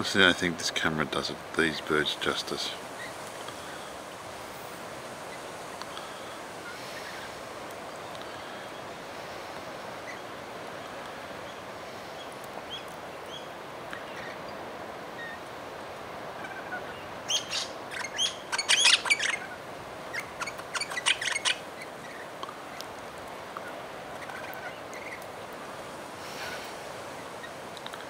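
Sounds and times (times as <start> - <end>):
background hiss: 0.0 - 28.0
parrots screeching: 16.4 - 22.2.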